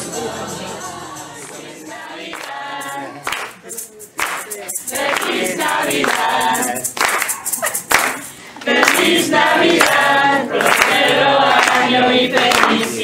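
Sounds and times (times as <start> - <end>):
group of people singing: 0.0 - 13.0.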